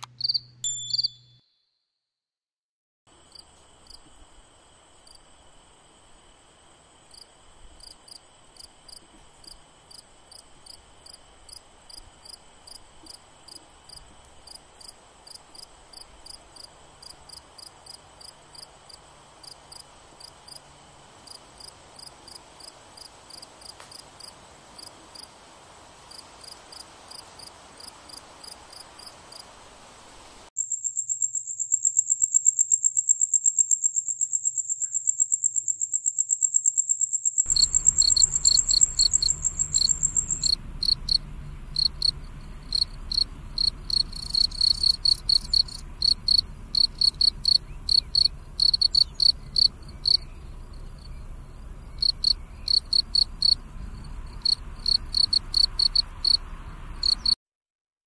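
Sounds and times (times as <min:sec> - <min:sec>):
low rhythmic cricket chirps: 0:00.0 - 0:01.4, 0:03.1 - 0:57.4
cricket high-pitched trill: 0:00.0 - 0:01.5, 0:30.6 - 0:57.4
faint pulsed cricket chirps: 0:00.0 - 0:01.5, 0:03.1 - 0:25.3, 0:26.1 - 0:57.4.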